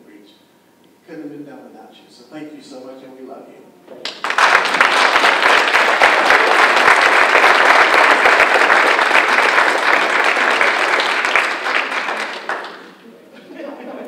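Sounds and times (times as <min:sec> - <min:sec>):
audience applauding: 0:04.0 - 0:13.0.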